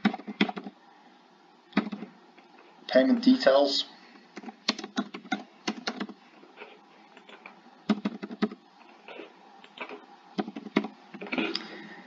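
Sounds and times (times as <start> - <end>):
keyboard typing: 0.0 - 0.7, 1.8 - 2.1, 4.4 - 6.2, 7.2 - 8.6, 10.4 - 11.4.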